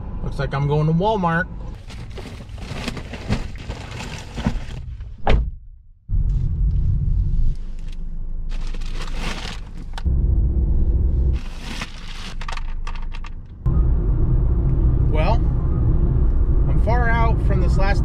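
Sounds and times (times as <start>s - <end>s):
car driving rumble: 0.0s - 18.0s
loud thump: 5.2s - 5.8s.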